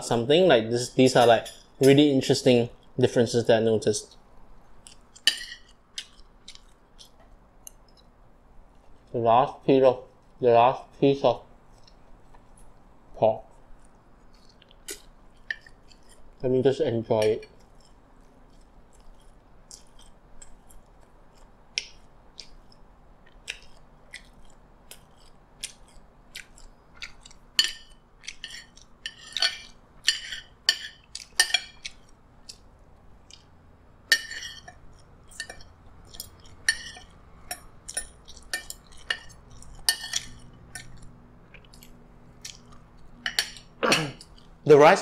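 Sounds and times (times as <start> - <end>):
person chewing food: 4.0 - 9.1, 11.5 - 16.4, 17.5 - 44.6
cutlery clinking on plate: 34.1 - 41.0.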